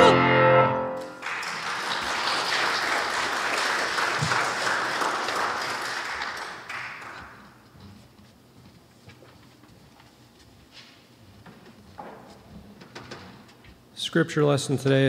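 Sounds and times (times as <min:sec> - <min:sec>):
congregation applauding: 0:01.0 - 0:07.6.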